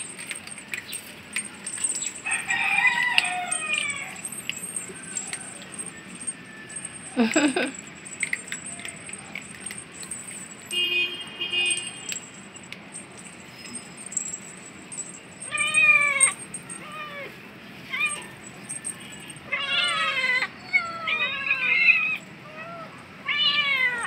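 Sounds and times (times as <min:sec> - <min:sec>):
light clicking and jingling: 0:00.0 - 0:22.4
cats meowing: 0:01.9 - 0:06.8, 0:15.5 - 0:18.4, 0:19.2 - 0:24.0.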